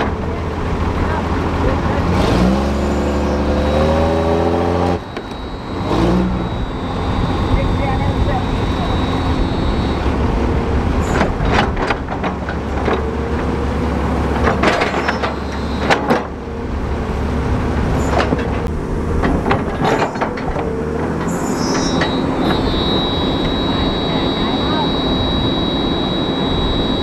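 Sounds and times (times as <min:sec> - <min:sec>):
bulldozer diesel engine running: 0:00.0 - 0:27.0
metallic clanks and squeaks of tracks: 0:02.4 - 0:16.4, 0:17.9 - 0:27.0
thin high whine: 0:04.7 - 0:11.6, 0:14.7 - 0:16.2, 0:21.2 - 0:27.0.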